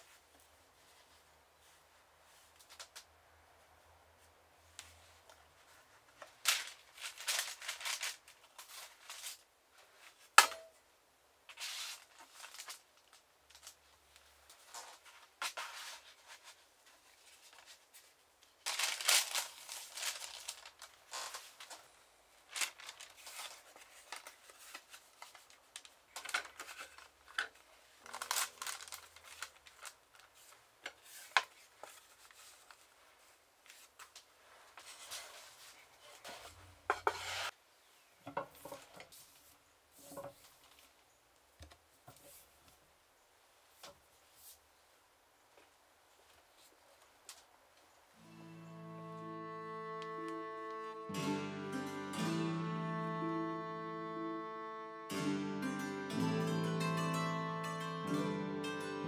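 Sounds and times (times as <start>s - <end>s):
paper rustling and sliding: 4.8s - 10.3s, 11.5s - 21.8s, 22.5s - 27.2s, 28.1s - 37.5s.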